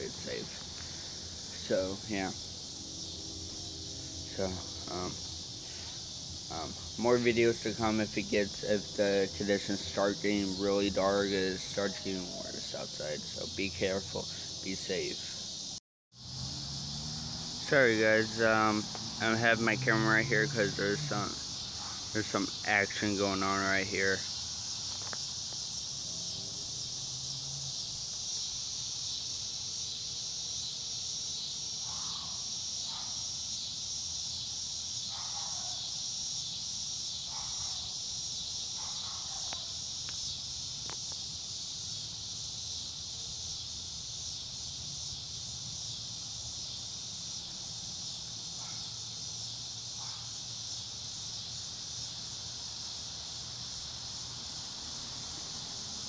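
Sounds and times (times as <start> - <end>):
high-pitched insect chorus: 0.0 - 56.0.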